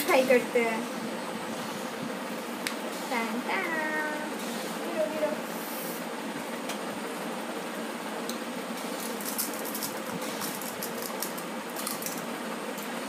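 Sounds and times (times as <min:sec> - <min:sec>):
crisp shell crunching: 0:09.0 - 0:12.3.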